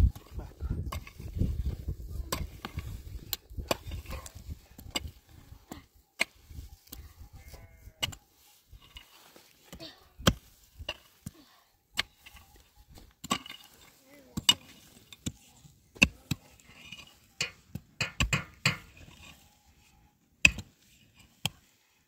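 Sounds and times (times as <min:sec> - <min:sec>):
sheep bleating: 0:07.3 - 0:08.0.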